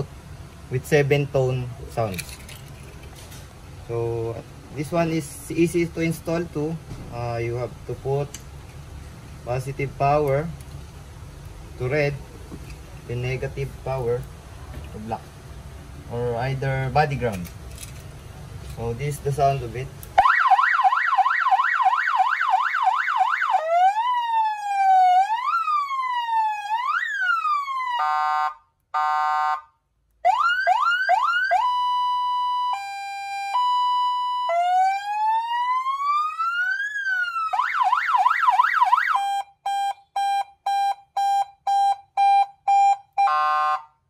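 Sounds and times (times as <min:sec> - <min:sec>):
electronic siren wailing and yelping: 0:20.2 - 0:29.6, 0:30.2 - 0:43.9
short siren beeps: 0:31.6 - 0:34.8, 0:39.0 - 0:44.0.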